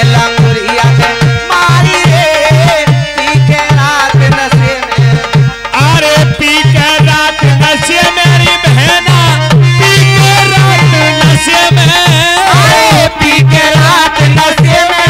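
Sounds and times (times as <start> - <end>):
dholak drum beat: 0.0 - 15.0
electronic keyboard melody: 0.0 - 15.0.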